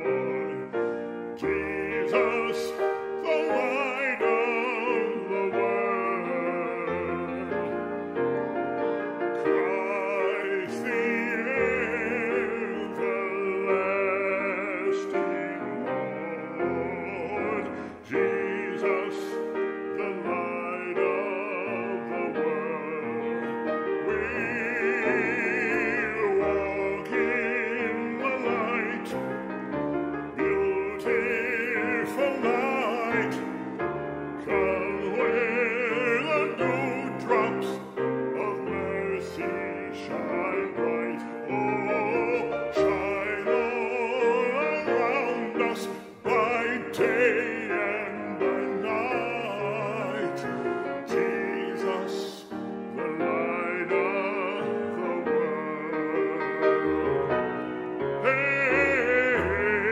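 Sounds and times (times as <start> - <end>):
grand piano: 0.0 - 59.9
man singing operatically: 0.0 - 59.9.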